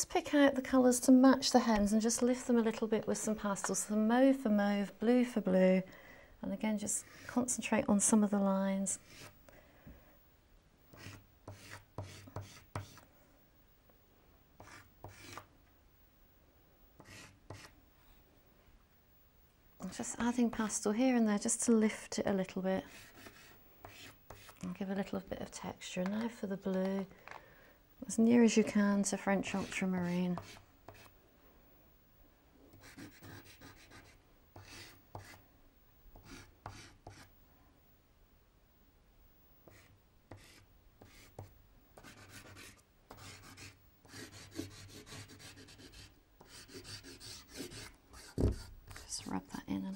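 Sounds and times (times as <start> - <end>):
pastel stick rubbing on paper: 39.7 - 49.1.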